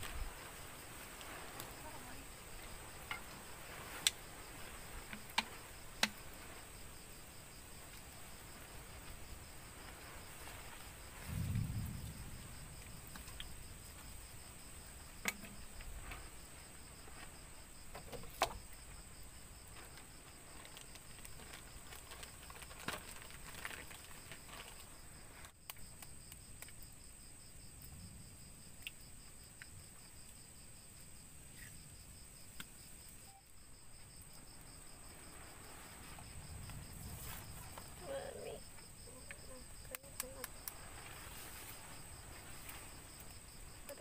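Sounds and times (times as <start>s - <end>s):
insects high whine: 0.0s - 21.6s, 31.5s - 44.0s
insects pulsing trill: 0.0s - 44.0s.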